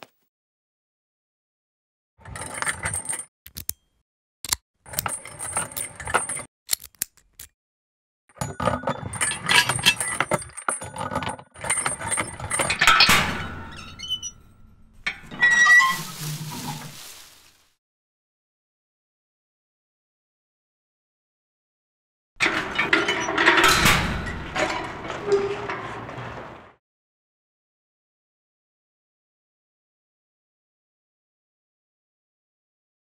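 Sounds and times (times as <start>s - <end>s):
metal chain rattling against gate: 8.5s - 16.0s, 22.4s - 26.4s
metal gate clattering open: 11.6s - 16.8s, 22.4s - 26.7s.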